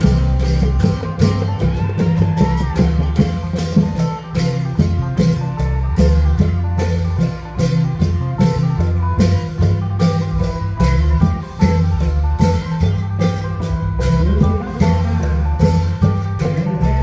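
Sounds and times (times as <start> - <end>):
long drums: 0.0 - 17.0
plucked-string melody: 0.0 - 17.0
steady bass line: 0.0 - 17.0.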